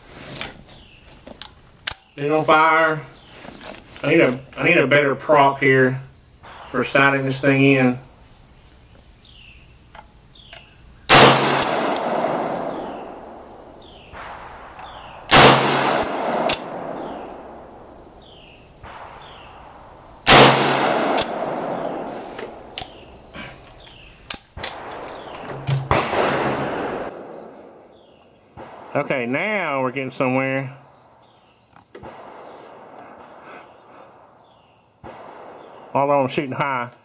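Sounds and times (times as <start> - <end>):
rifle shots with echo: 11.1 - 23.2, 24.6 - 29.6, 32.0 - 33.8, 34.5 - 36.4
sharp clicks and clinks: 11.9 - 14.0, 16.0 - 17.1, 21.0 - 23.1.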